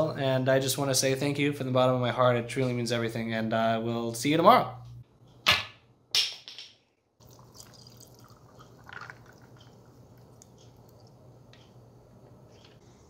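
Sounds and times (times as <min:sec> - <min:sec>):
liquid trickling into cup with ice: 0:07.2 - 0:11.2.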